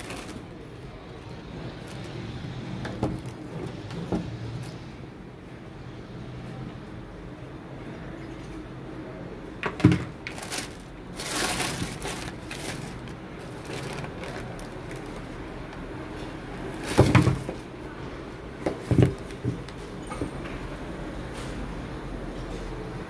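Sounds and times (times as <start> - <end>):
rustling: 0.0 - 0.5, 9.8 - 17.7.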